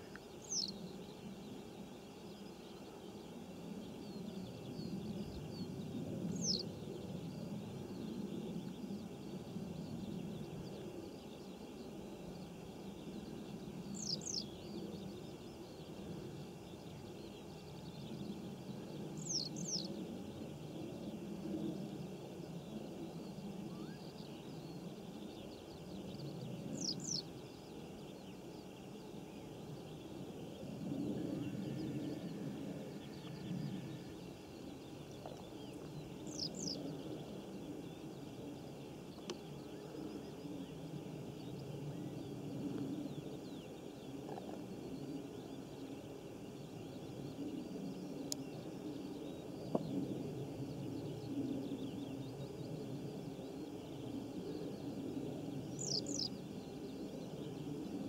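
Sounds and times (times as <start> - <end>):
small bird calls: 0.0 - 58.0
faint click: 39.2 - 39.4, 48.3 - 48.5.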